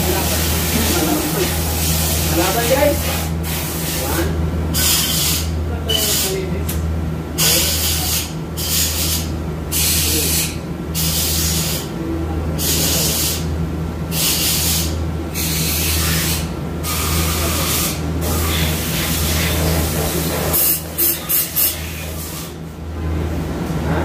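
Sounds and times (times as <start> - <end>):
steady low hum: 0.0 - 24.0
air blow gun hissing bursts: 14.1 - 22.5.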